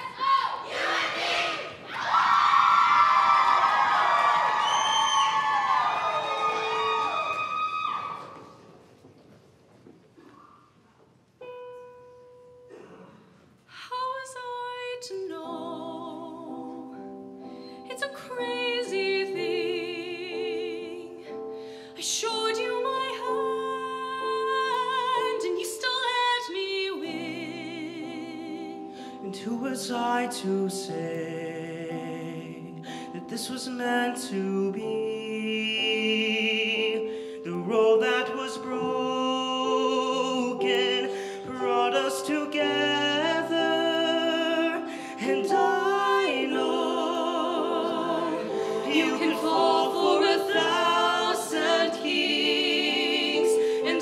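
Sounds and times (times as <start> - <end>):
woman singing with vibrato: 13.8 - 16.8
man singing: 29.3 - 46.4.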